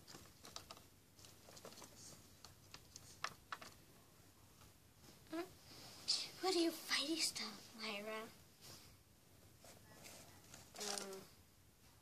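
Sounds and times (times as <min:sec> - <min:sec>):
faint clicks and taps: 0:00.0 - 0:03.8.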